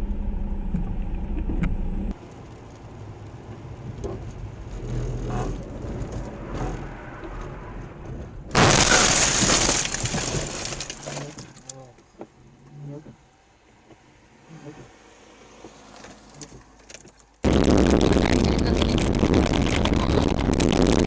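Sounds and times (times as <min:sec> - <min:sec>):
car road noise on wet road: 0:00.0 - 0:17.9
vehicle collision crash: 0:08.5 - 0:11.6.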